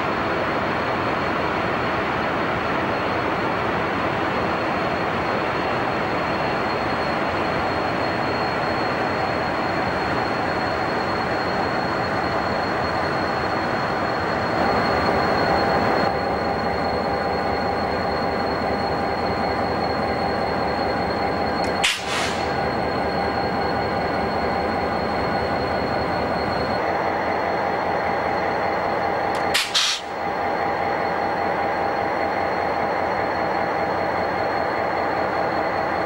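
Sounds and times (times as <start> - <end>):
constant high whine: 0.0 - 36.0
diesel locomotives idling: 13.4 - 34.1.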